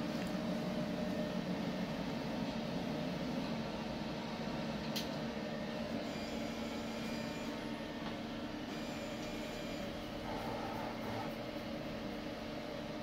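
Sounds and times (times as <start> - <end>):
printer fans and motors humming: 0.0 - 13.0
faint high whines: 5.5 - 8.0.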